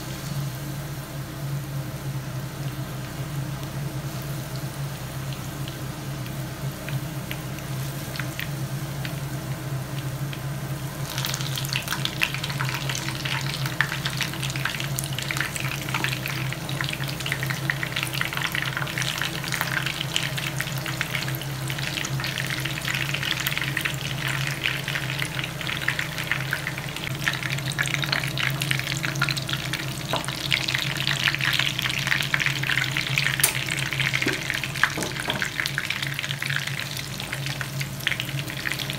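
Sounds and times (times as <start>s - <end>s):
hot oil sizzling and crackling: 0.0s - 38.9s
steady low hum: 0.0s - 38.9s.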